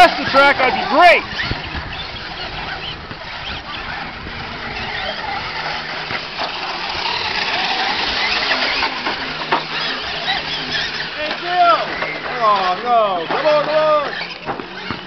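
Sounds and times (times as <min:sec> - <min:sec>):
electric motors whining: 0:00.0 - 0:15.0.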